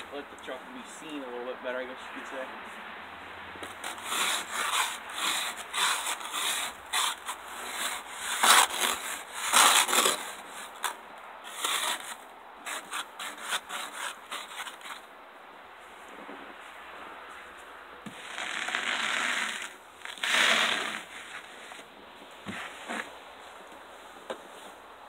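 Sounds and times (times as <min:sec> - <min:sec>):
brush sweeping snow: 0:03.7 - 0:10.9, 0:15.8 - 0:24.8.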